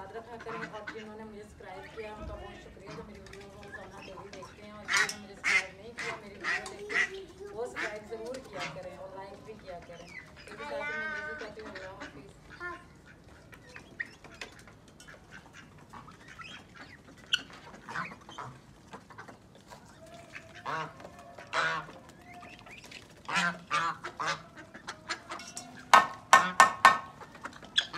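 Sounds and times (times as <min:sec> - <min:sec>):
ducks quacking: 0:00.0 - 0:27.9.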